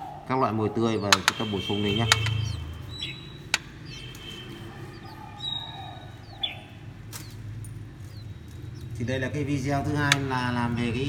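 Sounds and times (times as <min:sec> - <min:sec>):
nestlings cheeping: 0:00.0 - 0:11.0.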